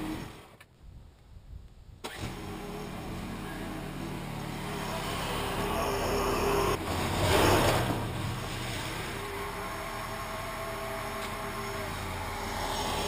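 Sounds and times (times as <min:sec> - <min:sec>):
small engine running: 0:08.7 - 0:13.0.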